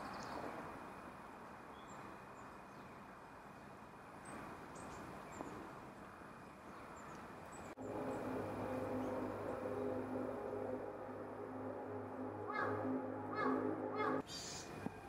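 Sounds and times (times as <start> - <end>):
music with held notes: 7.8 - 14.2.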